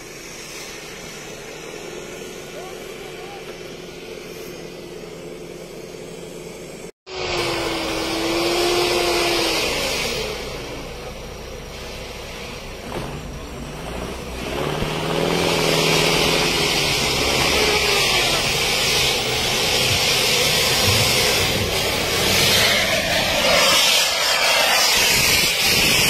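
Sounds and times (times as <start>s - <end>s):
spinning tyres hissing in snow: 0.0s - 26.0s
truck engine revving: 6.5s - 26.0s.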